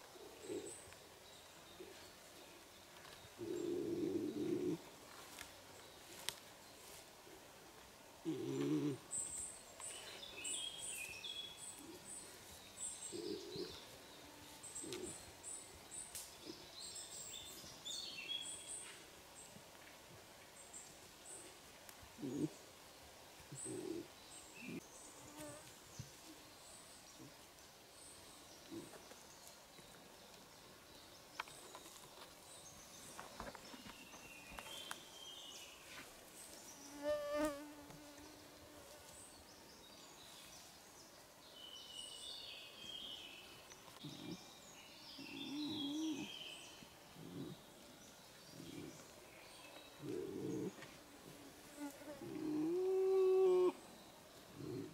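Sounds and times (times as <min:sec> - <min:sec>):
birds chirping: 0:08.3 - 0:18.9, 0:39.2 - 0:51.0
fly buzzing: 0:36.9 - 0:39.0.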